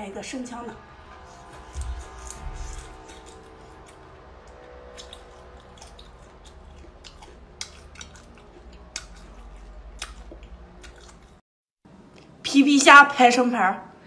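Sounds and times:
wet chewing sounds: 0:01.3 - 0:11.4.

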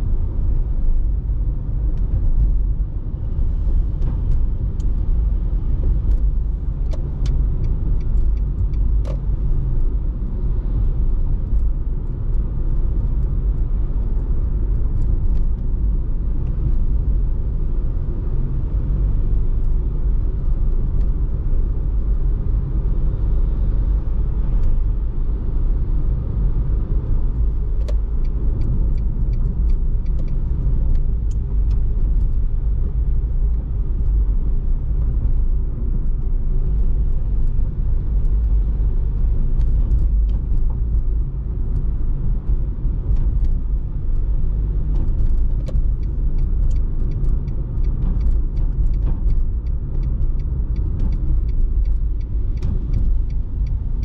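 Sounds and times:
car road and engine rumble: 0:00.0 - 0:54.0
light clicks: 0:44.9 - 0:54.0.

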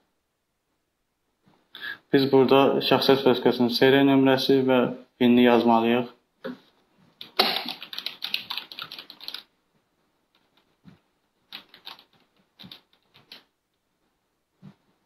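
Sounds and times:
computer keyboard typing: 0:07.2 - 0:09.5, 0:11.5 - 0:13.5.

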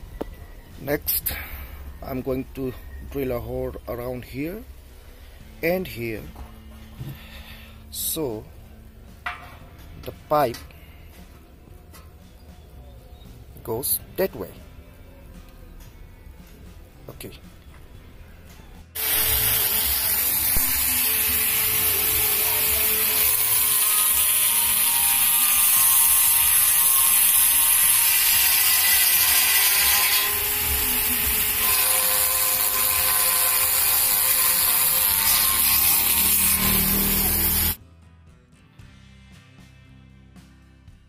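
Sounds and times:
rotary tool grinding steel: 0:19.0 - 0:37.8.

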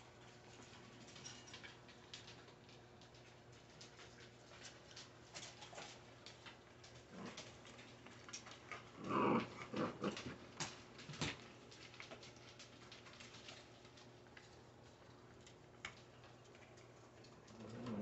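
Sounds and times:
puppies gnawing and crunching: 0:00.0 - 0:18.0
puppy vocalization: 0:07.0 - 0:10.4, 0:16.7 - 0:18.0.

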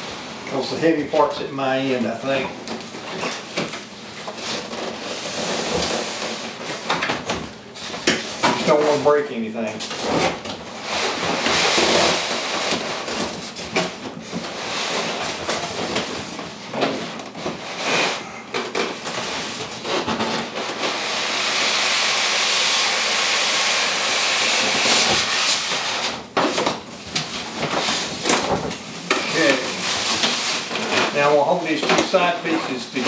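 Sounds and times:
foam scraping out of box: 0:04.4 - 0:06.9, 0:09.9 - 0:13.5, 0:14.3 - 0:16.1, 0:16.9 - 0:18.4, 0:19.2 - 0:26.2, 0:27.3 - 0:33.0
foam squeaking against cardboard: 0:19.8 - 0:26.2.

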